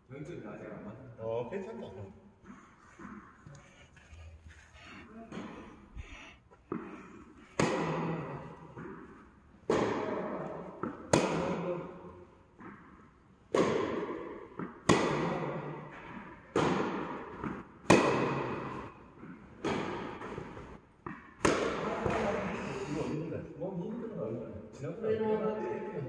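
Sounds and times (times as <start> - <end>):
rackets hitting tennis ball: 2.4 - 22.8.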